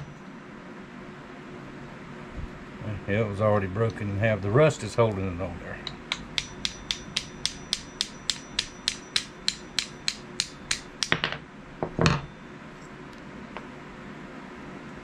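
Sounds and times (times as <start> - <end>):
hammer tapping on steel: 5.8 - 11.3.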